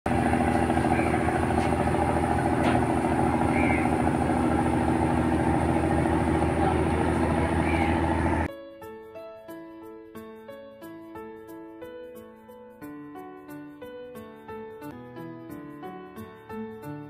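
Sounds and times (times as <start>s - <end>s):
boat engine running: 0.0s - 8.5s.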